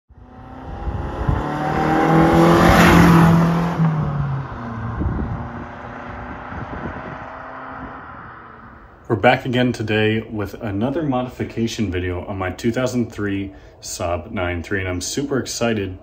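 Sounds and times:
car engine revving: 0.1s - 9.0s.

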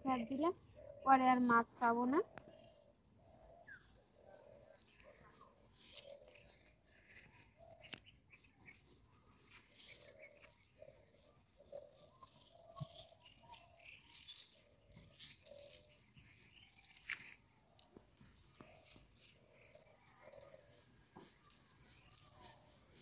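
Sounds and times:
net rustling and clicking: 9.5s - 23.0s.

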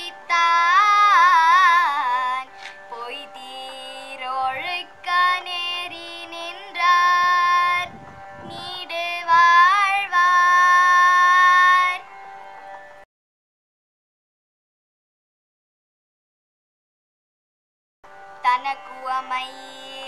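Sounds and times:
girl singing: 0.0s - 12.0s, 18.4s - 20.0s
musical accompaniment: 0.0s - 13.0s, 18.1s - 20.0s.

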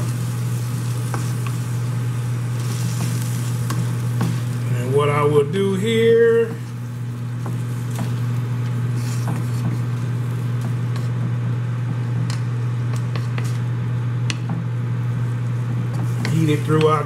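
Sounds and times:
faint sizzle: 0.0s - 17.0s
steady low hum: 0.0s - 17.0s
wooden spoon scraping a pan: 2.6s - 4.6s, 6.5s - 13.7s, 15.9s - 17.0s.

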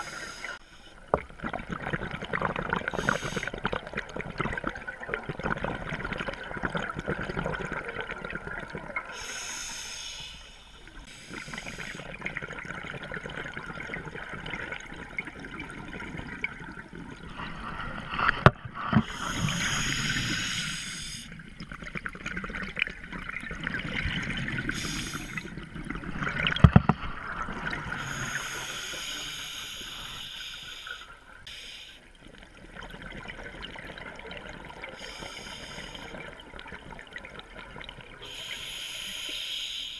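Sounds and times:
diver breathing underwater: 0.0s - 0.9s, 2.8s - 3.6s, 9.1s - 12.2s, 17.4s - 21.4s, 24.6s - 25.5s, 27.6s - 32.1s, 34.9s - 36.3s, 38.2s - 39.9s
exhaled bubbles rushing: 1.2s - 9.1s, 11.3s - 20.4s, 21.3s - 28.2s, 32.3s - 35.0s.

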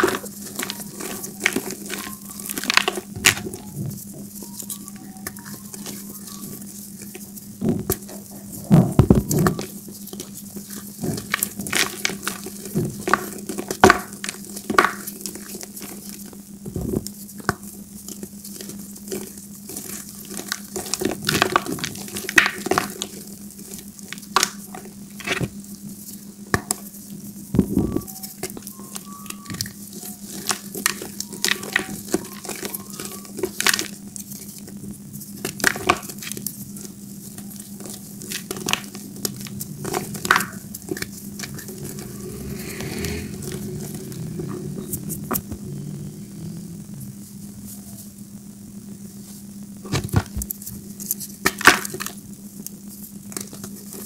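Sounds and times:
chalk balls crunching: 0.0s - 16.2s, 28.2s - 45.6s
low hum: 27.2s - 32.2s, 36.5s - 49.8s.

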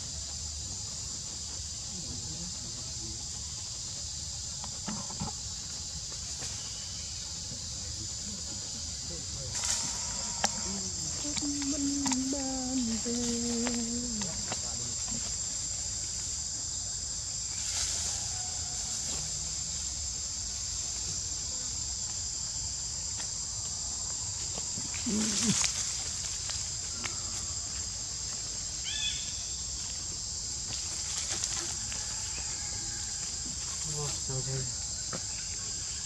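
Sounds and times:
high-pitched insect drone: 0.0s - 36.0s
low animal call: 24.8s - 25.9s.

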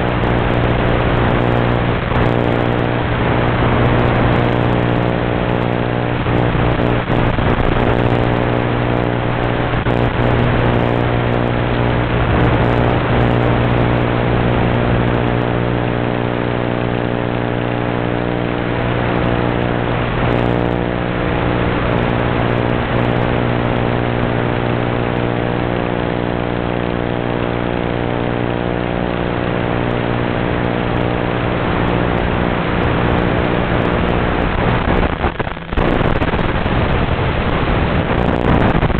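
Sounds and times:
wind noise: 0.0s - 15.3s, 31.0s - 38.9s
electric motor and propeller humming: 0.0s - 38.9s.

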